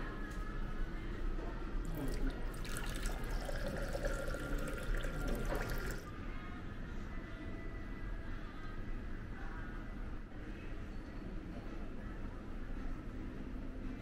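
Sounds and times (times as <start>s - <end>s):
water pouring into a glass: 1.9s - 6.1s.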